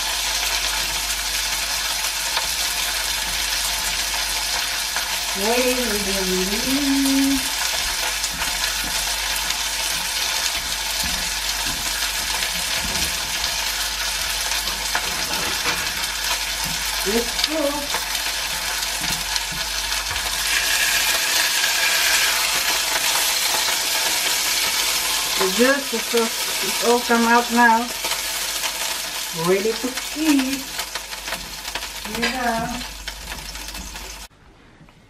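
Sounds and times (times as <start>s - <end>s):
steaks sizzling in frying pan: 0.0s - 34.3s.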